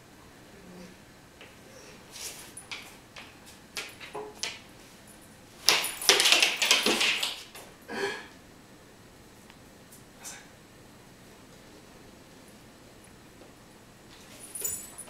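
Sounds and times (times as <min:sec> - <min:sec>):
dog claws skittering and scrabbling: 0:02.5 - 0:04.6, 0:05.6 - 0:07.7
dog claws tapping on wooden floor: 0:02.6 - 0:04.6, 0:05.7 - 0:07.7.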